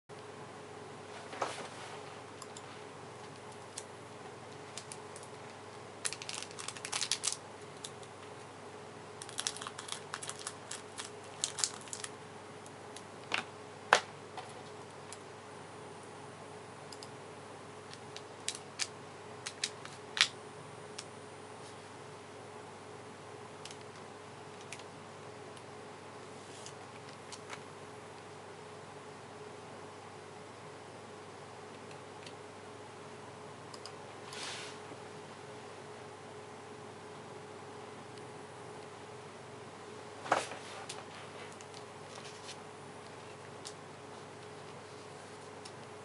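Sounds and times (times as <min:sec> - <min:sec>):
faint steady hum: 0:00.1 - 0:46.0
plastic wrapper crinkling: 0:06.0 - 0:08.0, 0:09.2 - 0:12.1.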